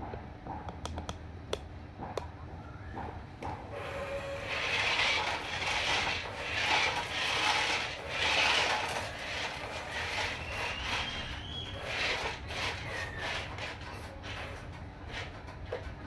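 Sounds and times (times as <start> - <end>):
small electric motor whirring: 3.8 - 14.5.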